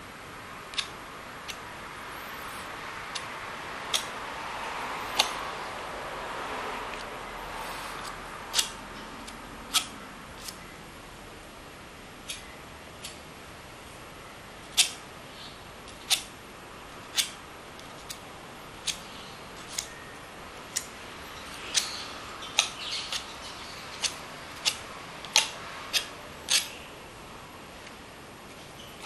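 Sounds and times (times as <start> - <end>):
palette knife clicking on canvas: 8.0 - 10.6, 14.7 - 15.0, 18.8 - 19.9, 24.0 - 26.7
palette knife scraping: 23.9 - 26.8.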